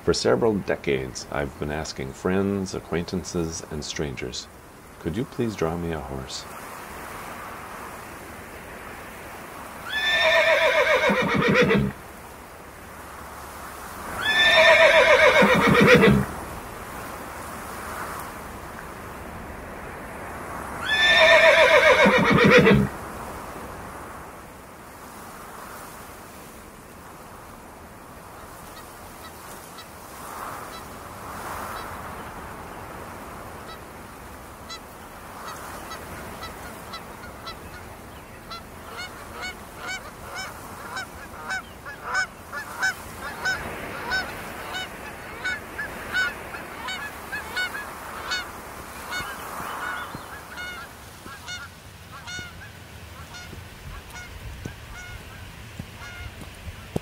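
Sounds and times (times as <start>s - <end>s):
horse whinnying: 9.9s - 12.0s, 14.2s - 16.3s, 20.8s - 22.9s
geese honking: 35.4s - 56.5s.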